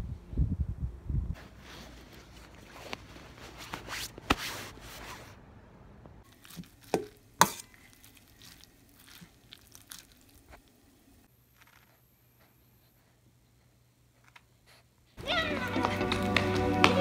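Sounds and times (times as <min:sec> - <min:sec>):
jacket fabric rustling: 0:01.4 - 0:05.4
soft eating sounds: 0:06.2 - 0:15.1.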